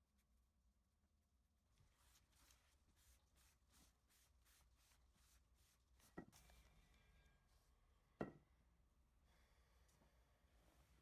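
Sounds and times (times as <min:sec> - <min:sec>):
paper towel rubbing wood: 0:01.9 - 0:06.4
light knocks on a table: 0:08.2 - 0:08.4.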